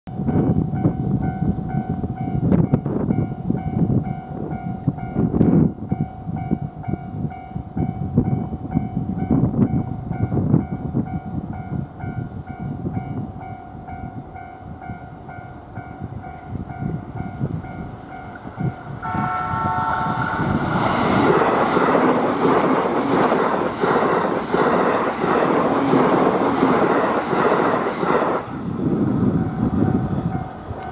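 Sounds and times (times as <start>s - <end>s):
train passing: 0.2s - 30.9s
level crossing alarm ringing: 19.0s - 20.6s
train horn blast: 19.0s - 20.7s.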